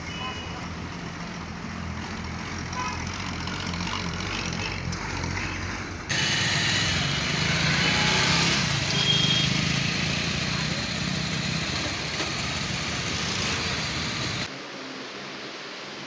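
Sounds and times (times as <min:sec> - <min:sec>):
street traffic hum: 0:00.0 - 0:16.0
motorcycle engine running: 0:02.0 - 0:14.5.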